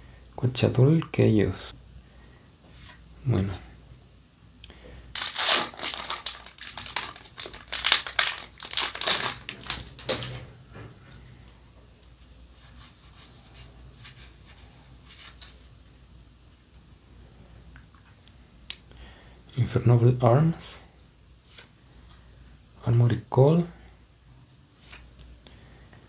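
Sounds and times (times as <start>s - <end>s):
wrapping crinkling and rustling: 5.1s - 10.3s
cards being shuffled: 5.2s - 10.2s, 24.8s - 25.1s.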